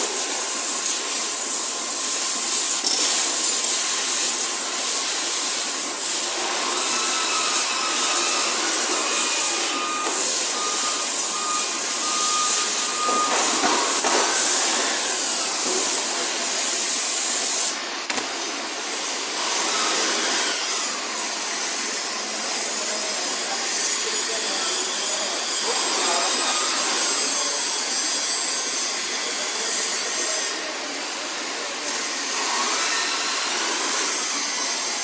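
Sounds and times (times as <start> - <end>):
hissing machinery noise: 0.0 - 35.0
thin whistle-like tone: 7.3 - 13.6.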